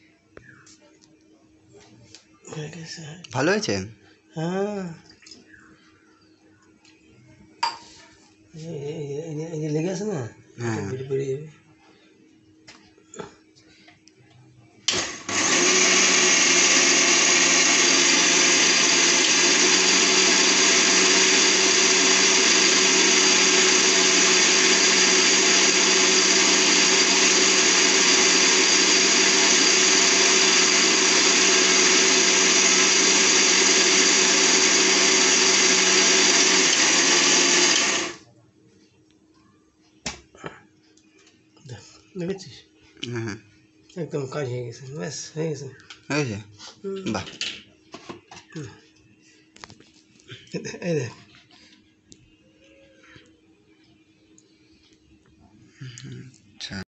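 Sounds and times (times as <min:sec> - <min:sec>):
mixer grinder motor running: 0:14.9 - 0:38.2.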